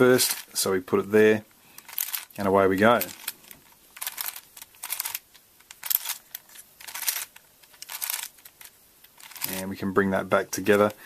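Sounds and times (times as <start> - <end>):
puzzle cube clicking rattle: 0.1 - 0.6, 1.7 - 9.6.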